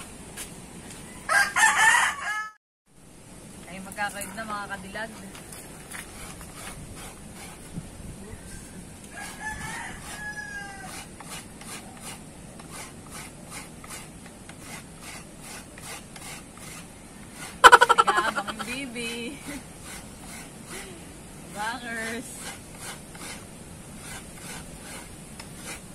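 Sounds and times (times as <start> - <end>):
rooster crowing: 1.1 - 2.6, 9.1 - 11.1, 17.6 - 18.4
coconut being grated: 6.0 - 7.7, 9.1 - 20.9, 21.5 - 25.9.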